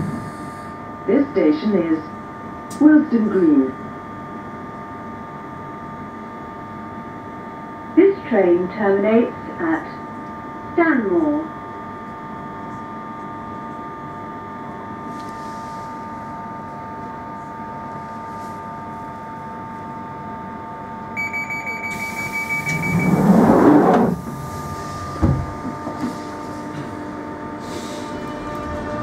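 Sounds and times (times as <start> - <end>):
rapid high warning beeps: 21.2 - 23.3
train equipment humming: 21.2 - 29.0
sliding doors closing: 21.9 - 26.2
doors shutting thump: 25.2 - 26.0.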